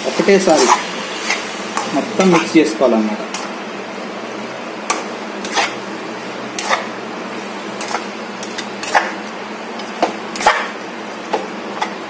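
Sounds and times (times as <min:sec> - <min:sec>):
steady cooking hiss: 0:00.0 - 0:12.0
spatula scraping a pan: 0:00.4 - 0:02.6, 0:04.9 - 0:05.9, 0:06.5 - 0:07.0, 0:07.8 - 0:09.2.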